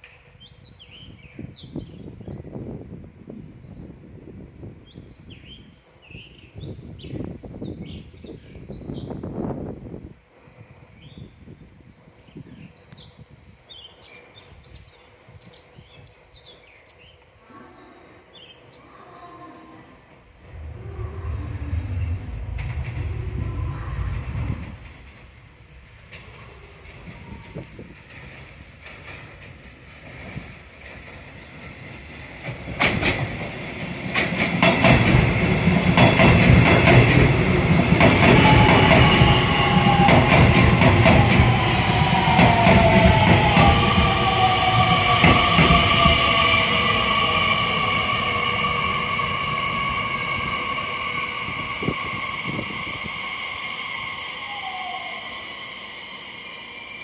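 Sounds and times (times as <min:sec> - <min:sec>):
electric train passing: 0:20.1 - 0:57.0
low background rumble: 0:20.4 - 0:25.1.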